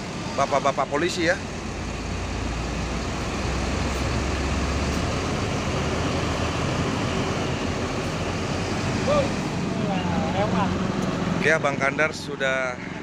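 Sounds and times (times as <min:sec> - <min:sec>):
diesel bus engine rumble: 0:00.0 - 0:13.0
road traffic noise: 0:00.0 - 0:13.0.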